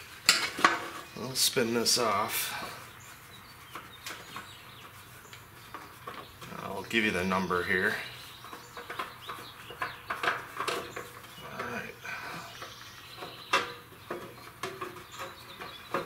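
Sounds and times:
oil filter clicks and knocks: 12.6 - 16.0.

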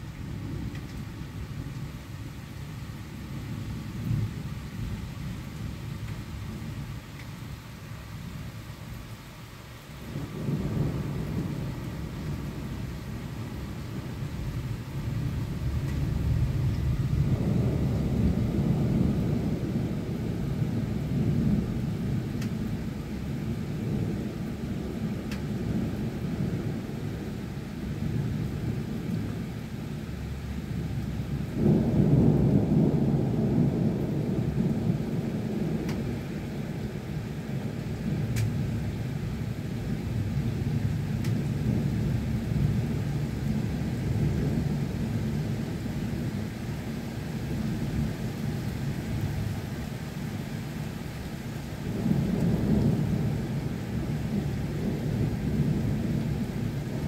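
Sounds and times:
steady rain: 0.0 - 57.0
faint ticks: 0.7 - 1.0, 7.1 - 7.3, 25.3 - 25.5, 35.8 - 36.0, 38.3 - 38.6, 41.2 - 41.4
thunder rumbling: 10.0 - 57.0.

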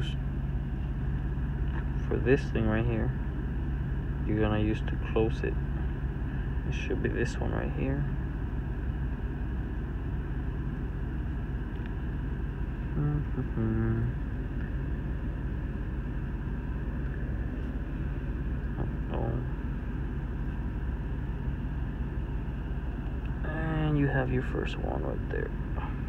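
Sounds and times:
car cabin rumble and hiss: 0.0 - 26.0
man humming: 12.9 - 14.2.

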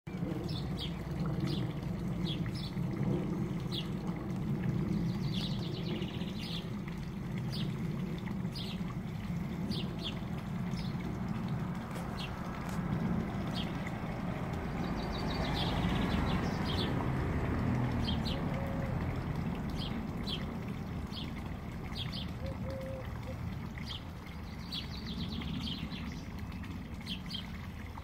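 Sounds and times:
steady low rumble: 0.1 - 18.5
small birds chirping: 4.8 - 6.8.

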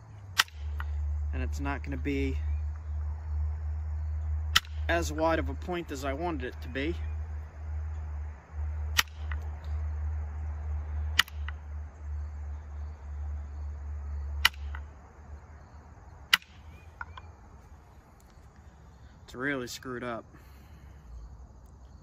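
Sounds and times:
low rumble: 0.0 - 18.2
antler striking flint clicks: 0.4 - 1.0, 4.5 - 4.9, 8.9 - 9.8, 11.1 - 11.7, 14.4 - 14.9, 16.3 - 17.3.

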